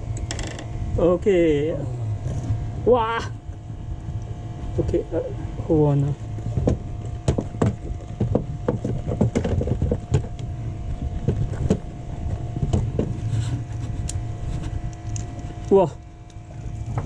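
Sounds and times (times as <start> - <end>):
boat engine hum: 0.0 - 17.0
knocks and clicks on boat deck: 6.4 - 13.2.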